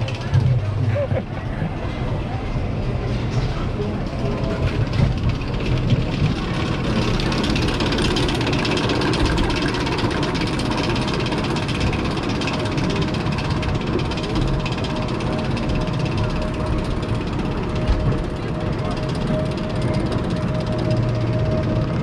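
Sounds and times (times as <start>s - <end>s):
lift-hill chain clattering: 4.1s - 22.0s.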